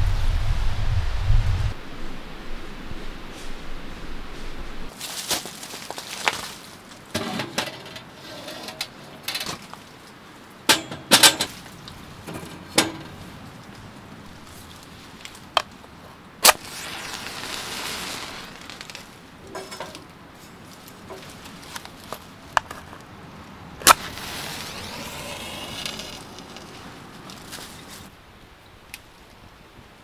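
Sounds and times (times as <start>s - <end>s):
soft rustling: 3.3s - 7.1s, 16.7s - 23.1s.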